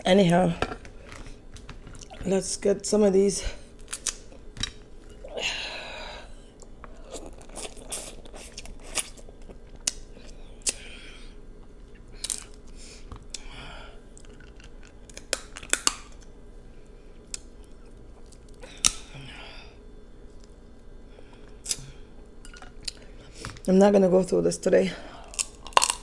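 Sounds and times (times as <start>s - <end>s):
crab shell cracking: 3.8s - 4.9s, 14.2s - 16.3s, 25.3s - 26.0s
wet chewing: 6.6s - 10.8s.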